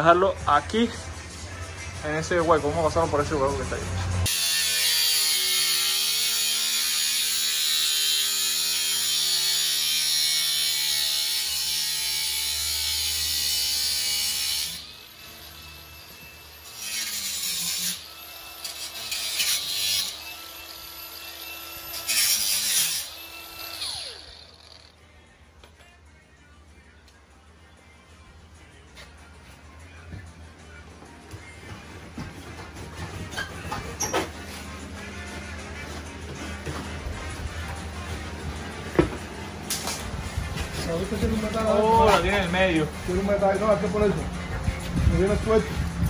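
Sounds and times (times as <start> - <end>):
angle grinder cutting metal: 4.3 - 25.0.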